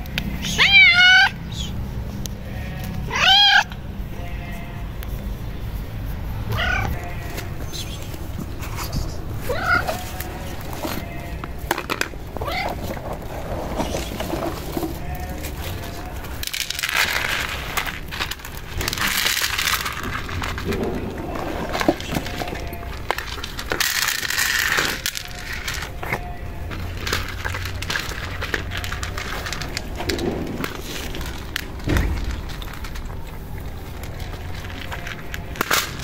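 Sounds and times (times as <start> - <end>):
cats crunching kibble: 0.0 - 36.0
dry kibble rattling onto plates: 7.0 - 36.0
plastic bag crinkling: 12.1 - 36.0.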